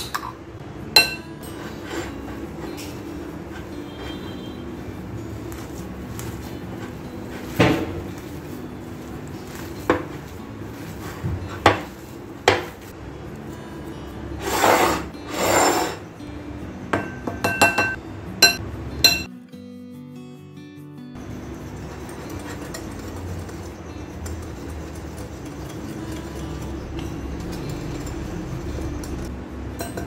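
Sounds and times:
metal rim clinking on glass: 1.0 - 2.2, 17.0 - 19.3, 24.1 - 30.0
kneading filling by hand: 1.6 - 12.9
mesh sieve rustling: 5.5 - 12.3.

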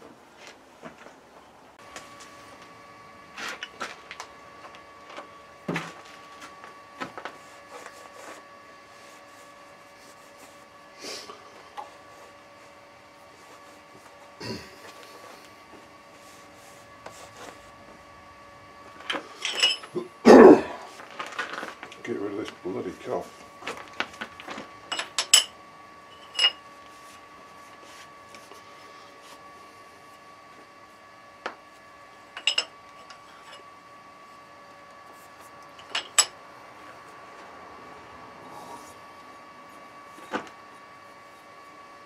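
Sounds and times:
faint steady hum: 0.0 - 42.0
metal clinking on metal: 19.4 - 19.9.

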